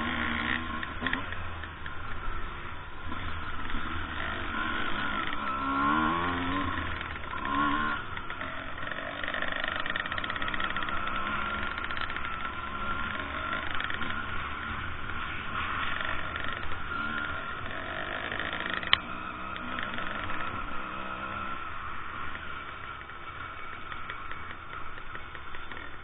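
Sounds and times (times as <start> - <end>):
motorcycle engines revving: 0.0 - 26.0.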